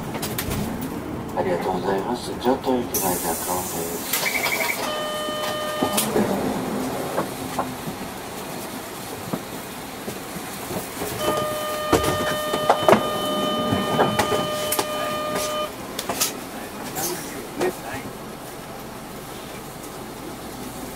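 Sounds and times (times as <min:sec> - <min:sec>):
electronic buzzer tone: 0:04.8 - 0:06.2, 0:11.2 - 0:15.7.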